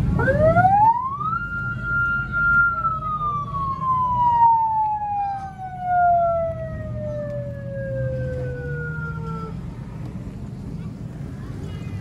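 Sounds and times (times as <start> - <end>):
siren falling tone: 0.2 - 9.5.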